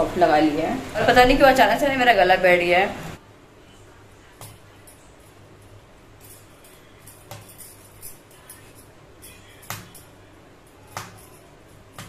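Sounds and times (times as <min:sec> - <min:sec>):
faint low hum: 0:00.0 - 0:12.0
glass bangles clinking: 0:04.4 - 0:12.0.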